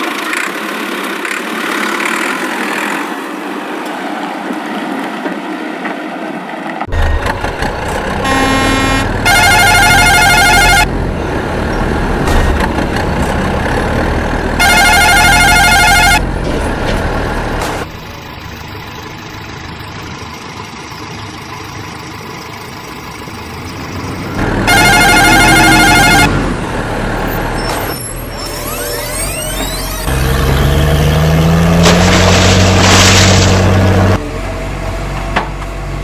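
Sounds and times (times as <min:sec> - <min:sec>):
truck engine running: 0:06.9 - 0:36.0
truck horn blasts: 0:08.2 - 0:11.0, 0:14.6 - 0:16.3, 0:24.4 - 0:26.4.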